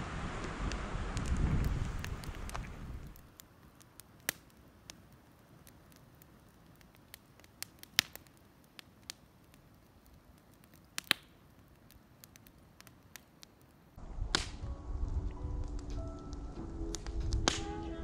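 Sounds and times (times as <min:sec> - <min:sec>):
campfire crackling and popping: 0:00.0 - 0:18.0
low rumble: 0:14.0 - 0:18.0
music: 0:14.1 - 0:18.0.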